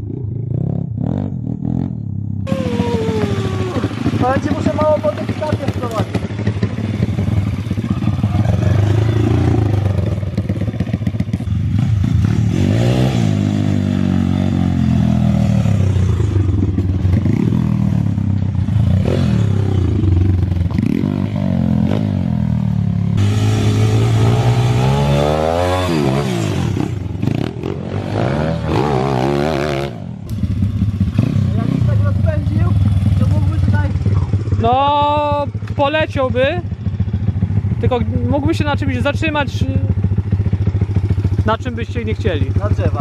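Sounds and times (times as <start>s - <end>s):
small engine revving: 2.5s - 6.2s, 23.2s - 30.4s.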